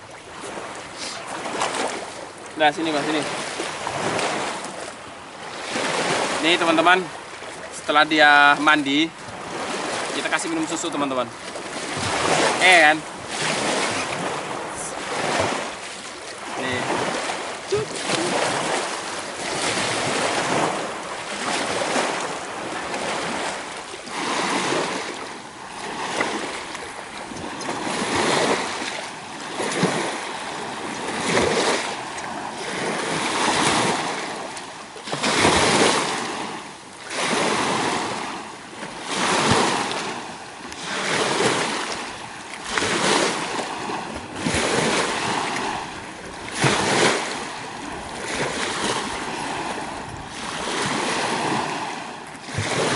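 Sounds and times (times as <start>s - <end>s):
lake waves washing against rocks: 0.0s - 52.9s.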